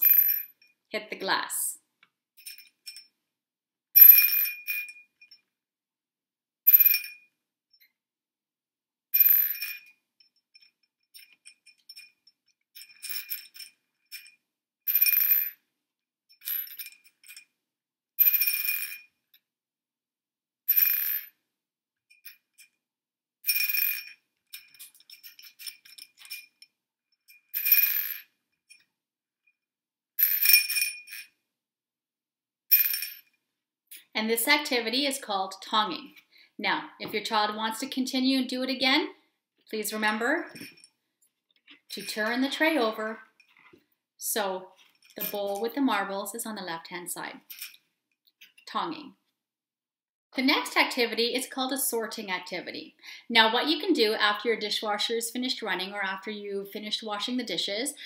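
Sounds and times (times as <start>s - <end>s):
marbles clinking into glass bowl: 0.0s - 0.6s, 4.0s - 5.4s, 6.7s - 7.2s, 27.5s - 28.8s, 30.2s - 31.3s.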